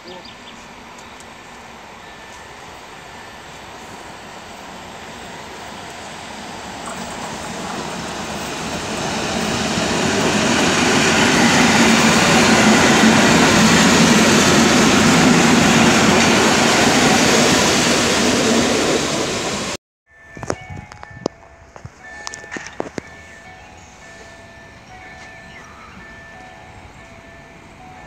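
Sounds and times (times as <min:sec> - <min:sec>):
train wheels rumbling on rails: 0:00.1 - 0:19.8.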